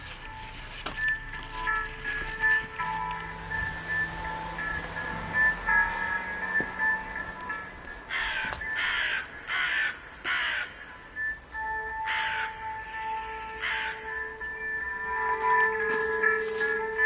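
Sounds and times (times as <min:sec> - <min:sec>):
background music: 0:00.0 - 0:17.0
crow cawing: 0:08.0 - 0:10.9, 0:12.0 - 0:14.2.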